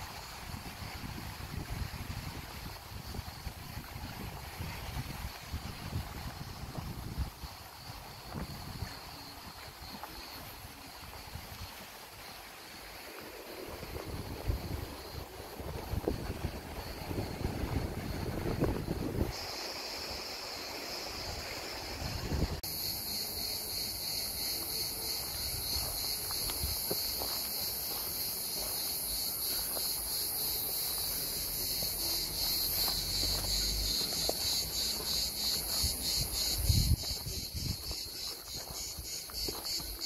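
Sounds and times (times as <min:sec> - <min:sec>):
higher-pitched cicada song: 0:00.0 - 0:40.0
cicadas shrilling: 0:00.1 - 0:40.0
footsteps: 0:24.4 - 0:40.0.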